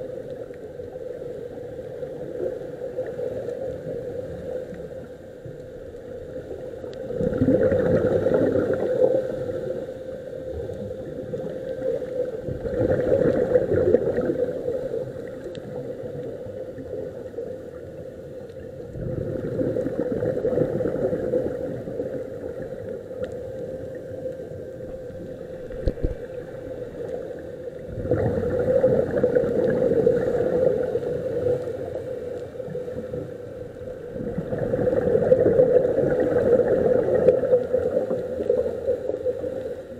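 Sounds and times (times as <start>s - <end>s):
steady hum: 0.0s - 39.9s
underwater regulator bubbles: 6.5s - 9.8s, 10.6s - 17.4s, 18.5s - 39.8s.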